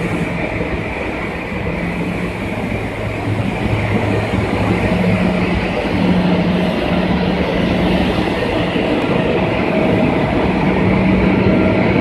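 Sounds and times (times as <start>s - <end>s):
machinery droning: 0.0s - 12.0s.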